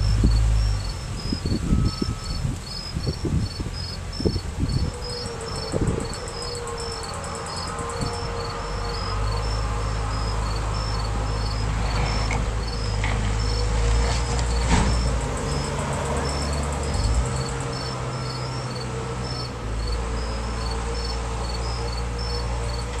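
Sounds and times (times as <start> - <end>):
crane engine droning: 0.0 - 23.0
crickets chirping: 0.0 - 23.0.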